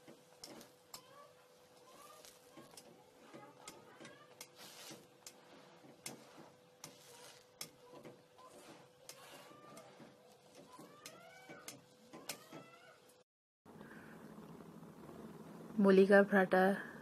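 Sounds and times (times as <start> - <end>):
oil sizzling and crackling: 0.0 - 13.2.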